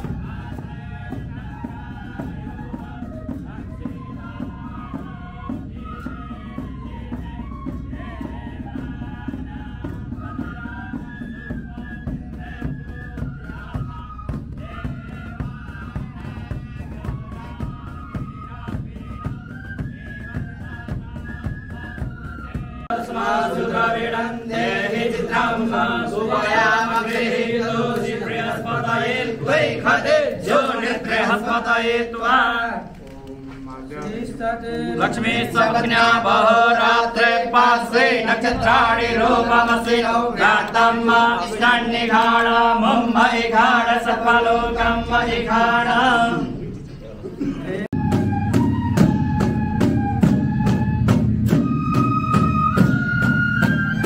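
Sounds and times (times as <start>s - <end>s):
flutes playing melody: 0.0s - 29.9s, 47.9s - 54.0s
mantra chanting: 12.0s - 46.7s.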